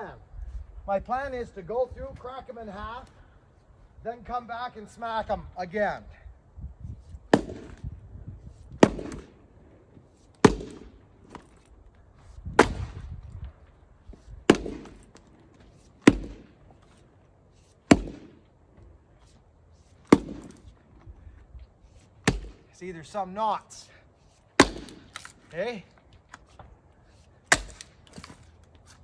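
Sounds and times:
axe splitting firewood: 6.9 - 13.4, 14.1 - 21.2, 21.8 - 22.8, 23.5 - 29.0.

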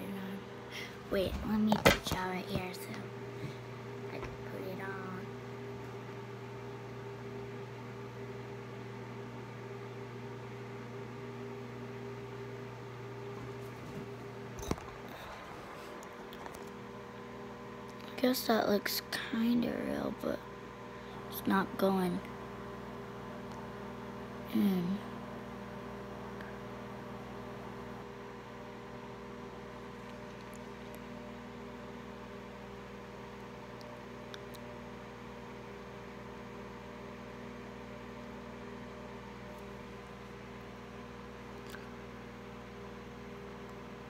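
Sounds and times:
appliance motor hum: 0.0 - 44.0.

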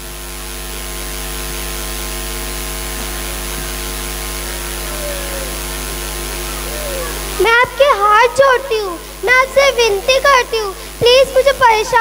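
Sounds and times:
electrical mains hum with hiss: 0.0 - 12.0.

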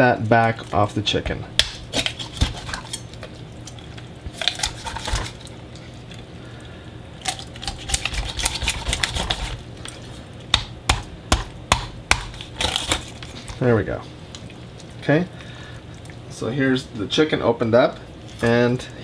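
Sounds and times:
knife crunching through bone: 1.6 - 5.5, 7.2 - 13.6.

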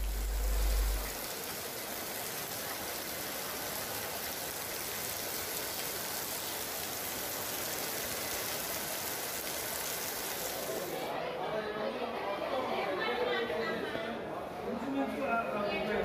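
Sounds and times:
heavy rain falling: 0.0 - 11.1.

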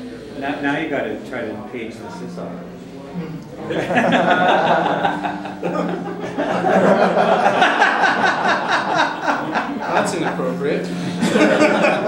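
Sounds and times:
people talking: 0.0 - 12.0
people laughing: 3.6 - 12.0.

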